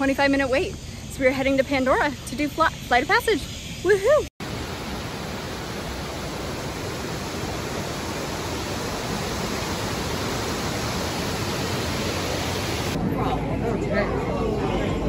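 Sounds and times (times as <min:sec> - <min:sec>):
falling water rushing: 0:04.4 - 0:13.0.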